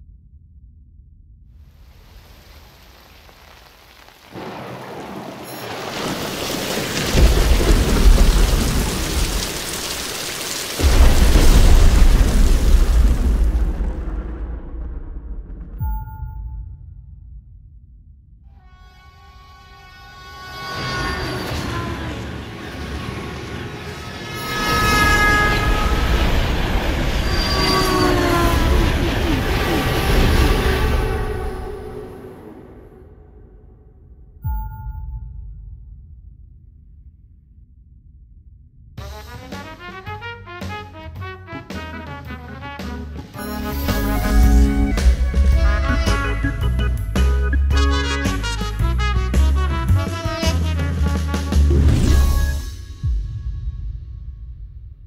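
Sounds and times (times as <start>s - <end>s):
heavy rain: 1.8s - 15.7s, 20.6s - 33.0s, 43.4s - 47.2s
thunder rumbling: 1.8s - 18.4s, 20.6s - 34.1s, 43.4s - 50.1s
train horn: 18.5s - 32.5s, 39.0s - 46.9s, 47.7s - 51.7s
train rumbling past: 18.8s - 33.2s, 43.4s - 47.3s.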